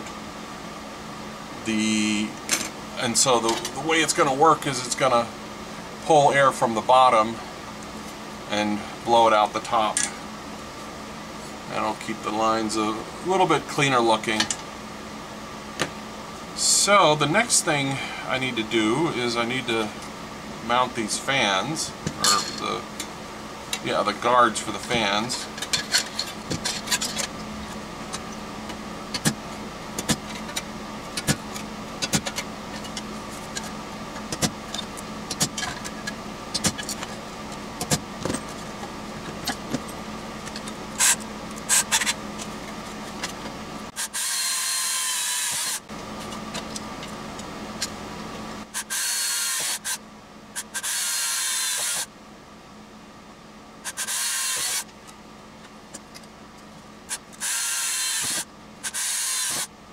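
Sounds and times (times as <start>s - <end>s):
metal tools clattering on workbench: 22.2s - 22.7s
cordless drill whirring: 44.0s - 45.8s, 48.8s - 50.0s, 50.7s - 52.1s, 53.9s - 54.8s, 57.4s - 59.7s.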